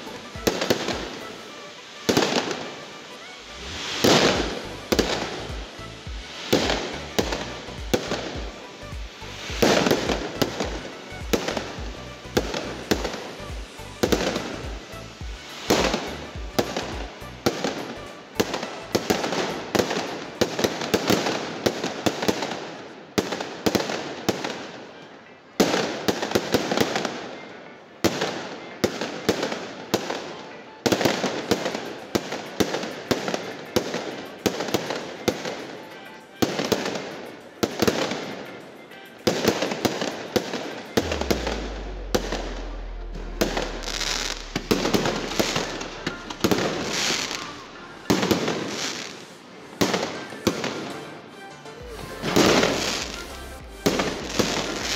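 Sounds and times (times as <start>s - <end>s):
heavy fireworks bangs: 0.0s - 24.8s, 39.2s - 51.0s, 51.8s - 54.9s
fireworks bursting: 0.0s - 54.9s
fireworks crackling: 0.0s - 54.9s.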